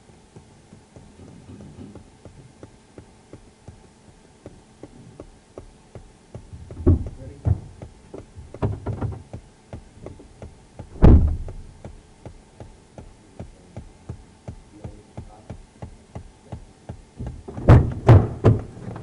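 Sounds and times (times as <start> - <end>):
thumps in car back seat: 6.4 - 9.4, 10.0 - 13.1.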